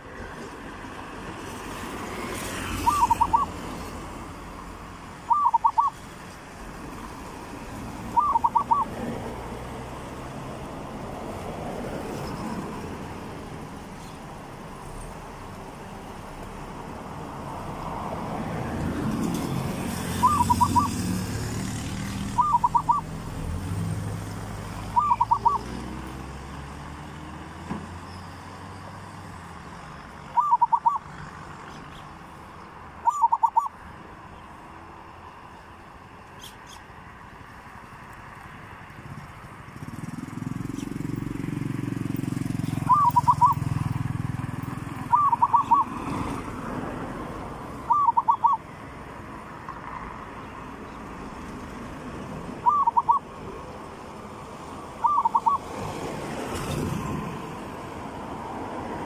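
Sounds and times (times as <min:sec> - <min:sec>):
dove cooing: 0:02.7 - 0:03.6, 0:05.3 - 0:06.0, 0:08.0 - 0:09.1, 0:20.1 - 0:21.1, 0:22.3 - 0:23.1, 0:24.9 - 0:25.8, 0:30.3 - 0:31.1, 0:33.0 - 0:33.8, 0:42.6 - 0:43.7, 0:45.0 - 0:46.1, 0:47.8 - 0:48.7, 0:52.6 - 0:53.3, 0:55.0 - 0:55.7.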